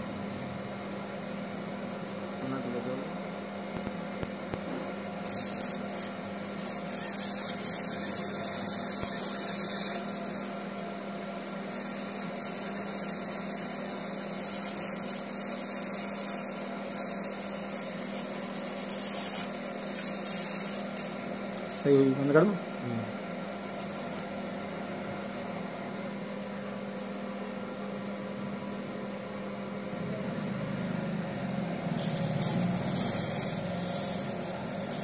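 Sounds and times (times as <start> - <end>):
steady machine hum: 0.0 - 35.0
laser hissing on metal: 5.2 - 10.6, 11.4 - 21.2, 32.0 - 35.0.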